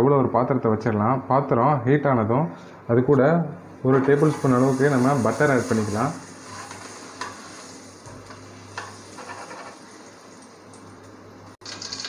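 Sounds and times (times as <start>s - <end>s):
butter sizzling in a pot: 4.2s - 10.8s, 11.6s - 12.0s.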